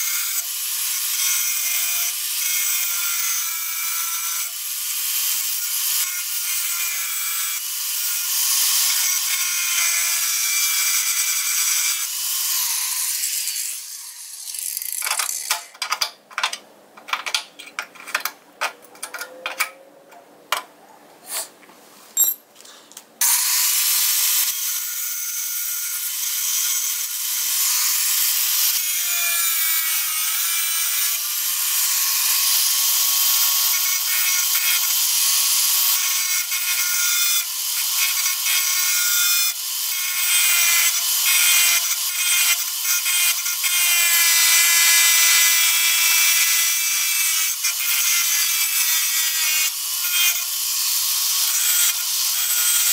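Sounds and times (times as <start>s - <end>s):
angle grinder cutting steel: 0.0s - 16.0s, 23.2s - 52.9s
hand tool clicking on metal: 14.8s - 20.7s.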